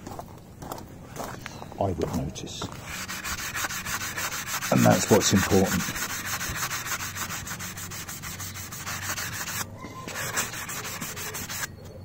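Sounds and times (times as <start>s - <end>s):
hand sanding metal: 2.7s - 11.7s.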